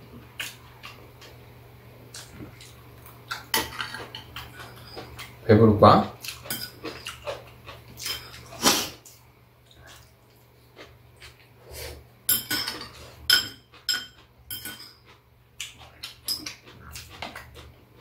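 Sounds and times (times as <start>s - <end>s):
metal utensils clinking on bowls: 3.4s - 5.3s, 6.4s - 7.2s, 8.0s - 8.4s, 12.3s - 15.2s.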